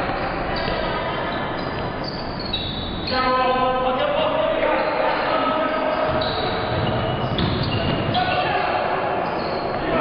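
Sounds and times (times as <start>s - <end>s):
general hubbub: 0.0s - 10.0s
players moving on court: 5.6s - 10.0s.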